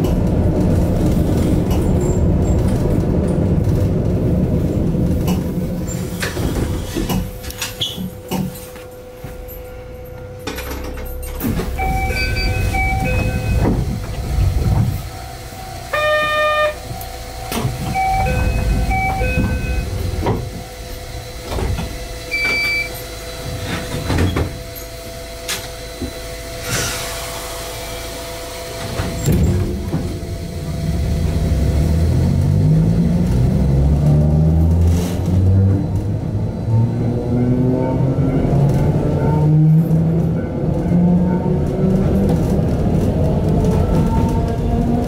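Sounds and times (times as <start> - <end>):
train electrical hum: 0.0 - 45.0
traction motors whining: 9.3 - 37.4
brief buzzer: 15.9 - 16.8.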